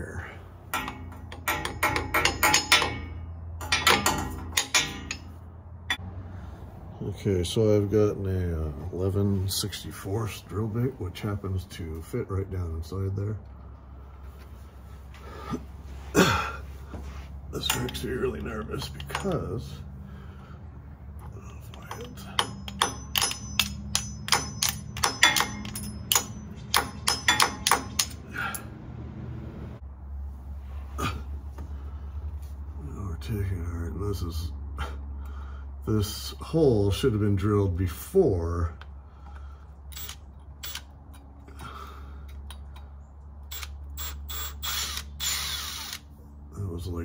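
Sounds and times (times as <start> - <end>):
steady low hum: 0.0 - 47.0
hand tools clicking and tapping: 0.7 - 5.3, 17.6 - 19.5, 21.2 - 28.7.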